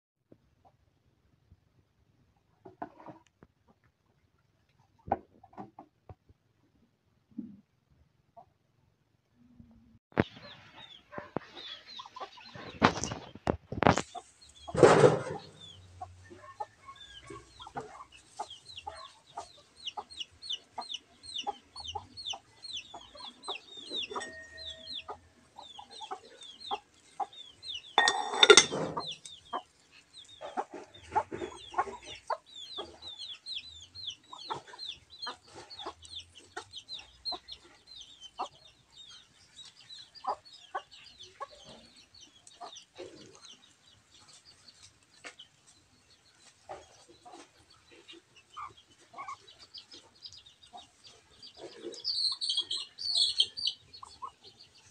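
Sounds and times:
chickens clucking: 10.1s - 54.9s.

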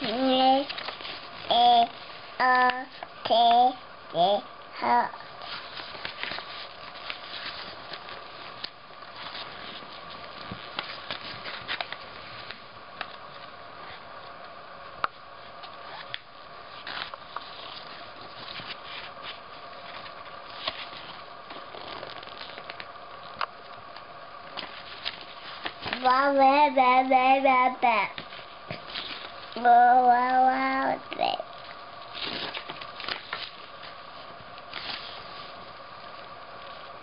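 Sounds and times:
paper pages rustling: 0.0s - 2.3s, 5.4s - 14.1s, 15.4s - 26.3s, 28.1s - 30.4s, 31.6s - 37.0s.

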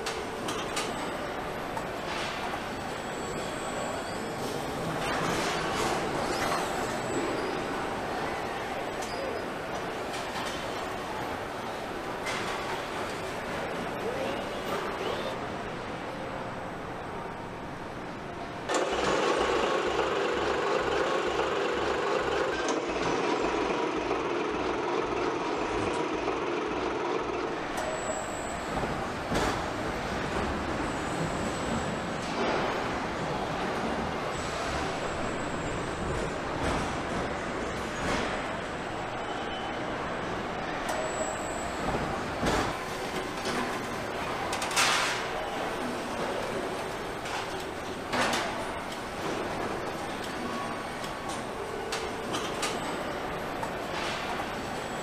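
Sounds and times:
diesel truck engine running: 18.8s - 28.9s.

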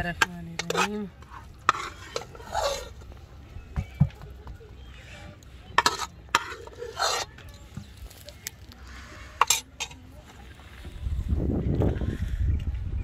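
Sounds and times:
ladle scraping metal wok: 0.0s - 3.1s, 5.8s - 7.4s, 8.9s - 10.0s.

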